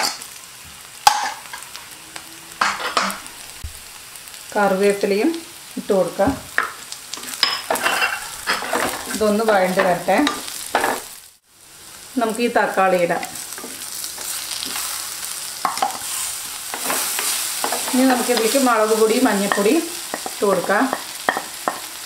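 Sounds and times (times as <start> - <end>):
frying sizzle: 0.0 - 22.0
wooden spatula scraping pot: 7.2 - 11.1.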